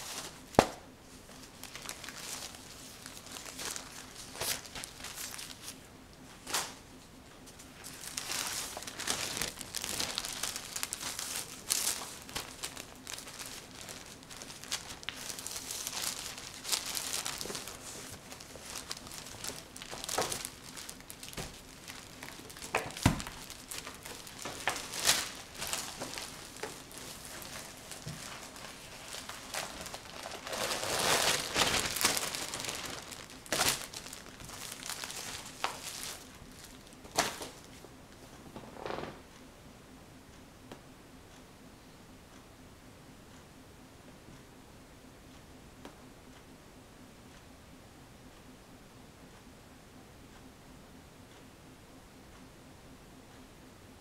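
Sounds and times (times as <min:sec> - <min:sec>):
crinkling and rustling: 0:00.0 - 0:39.4.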